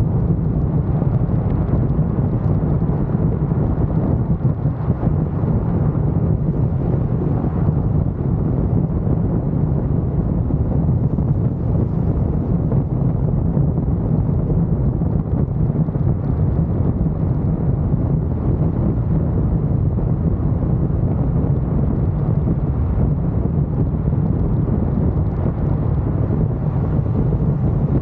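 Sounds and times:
wind buffeting microphone: 0:00.0 - 0:28.0
car road noise: 0:00.1 - 0:28.0.

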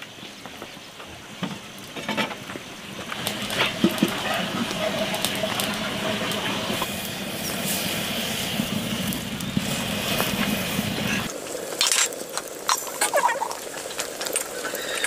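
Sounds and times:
fat sizzling in a pot: 0:01.6 - 0:15.0.

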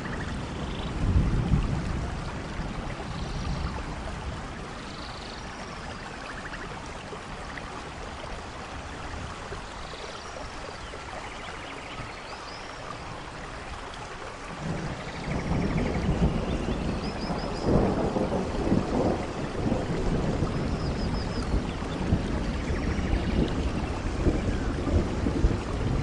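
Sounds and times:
falling water rushing: 0:00.0 - 0:26.0.

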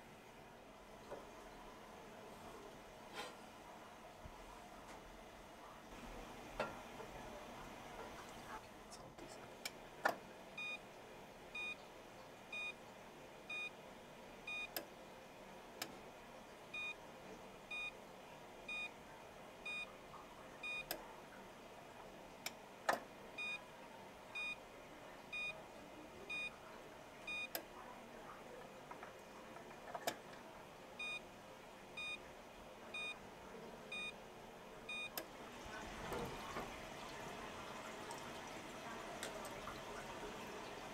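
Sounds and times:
timer beeping: 0:20.6 - 0:20.9, 0:33.9 - 0:34.2.

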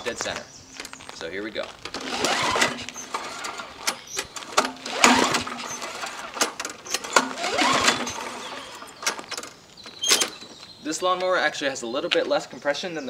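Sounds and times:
mower recoil starter cord whirring: 0:01.8 - 0:10.5.

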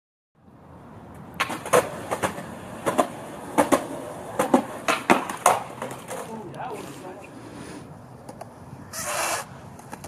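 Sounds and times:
skateboard rolling on concrete: 0:00.6 - 0:10.0
skateboard wheels clacking: 0:01.3 - 0:07.0, 0:08.2 - 0:10.0.

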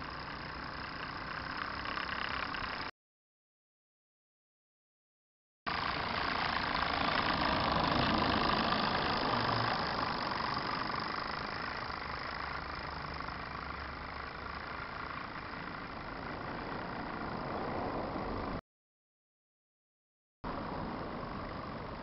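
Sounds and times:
steam engines running: 0:05.7 - 0:17.6.

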